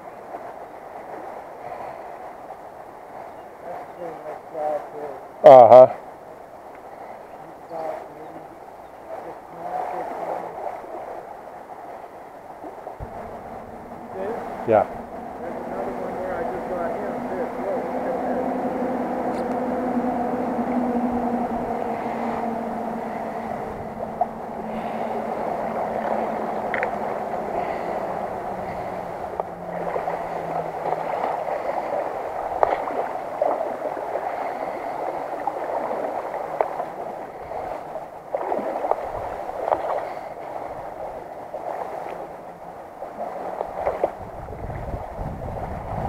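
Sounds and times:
river water swirling around legs: 0.0s - 46.0s
small water splashes: 21.8s - 46.0s.

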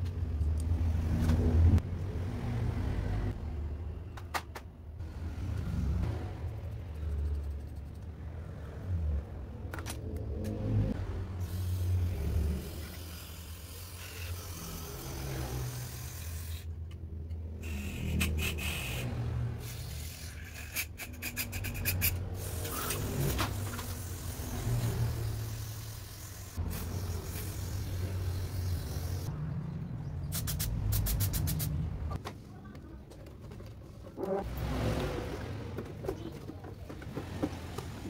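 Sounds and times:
aerosol spray hissing: 24.0s - 29.3s.

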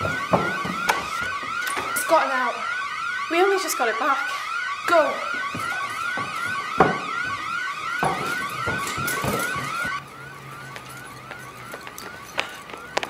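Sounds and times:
running footsteps thumping: 0.0s - 2.0s, 5.3s - 10.0s, 10.6s - 13.0s
doors thumping: 0.0s - 2.2s, 5.2s - 10.0s
alarm siren whooping: 0.0s - 13.0s.

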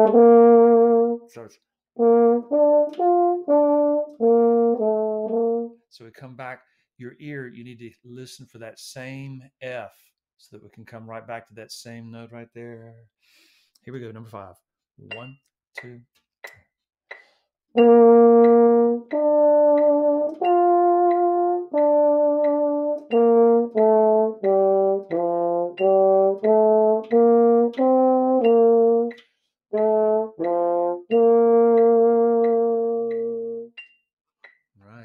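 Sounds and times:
french horn playing low notes: 0.0s - 5.8s, 17.8s - 29.2s, 29.8s - 33.7s
player taking a breath: 6.6s - 7.0s, 13.2s - 13.8s.

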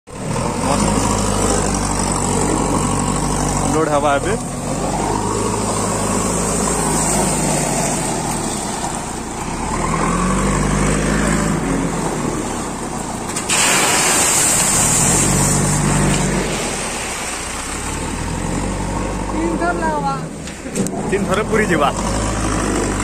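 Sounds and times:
diesel engine revving: 0.1s - 23.0s
loud rushing hiss: 13.5s - 15.8s.

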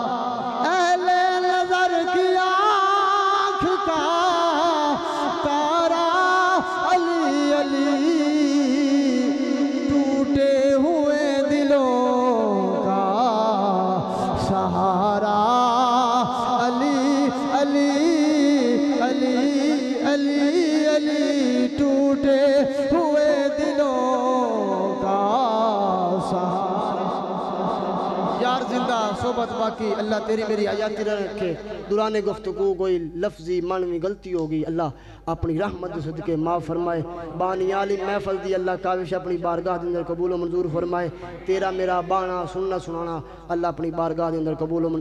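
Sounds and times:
man singing: 0.0s - 32.8s.

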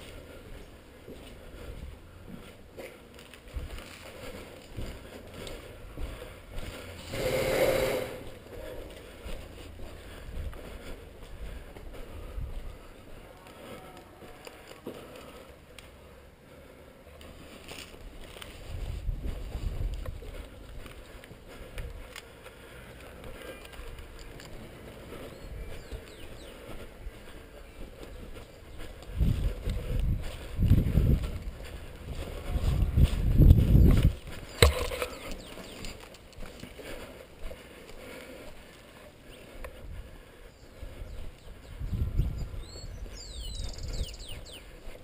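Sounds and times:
footsteps on concrete: 0.0s - 45.0s
low wind rumble: 3.4s - 13.1s, 18.0s - 37.0s, 39.6s - 45.0s.

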